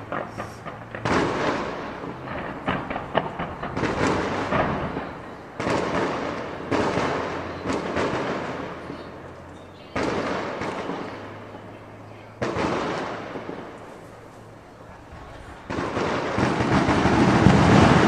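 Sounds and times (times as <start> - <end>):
fireworks bangs and crackles: 0.0 - 18.0.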